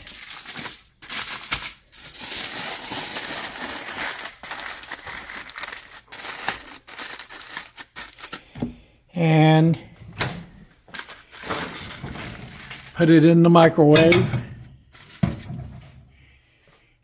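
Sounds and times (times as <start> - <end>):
aluminium foil crumpling: 0.0 - 8.5, 10.9 - 13.9.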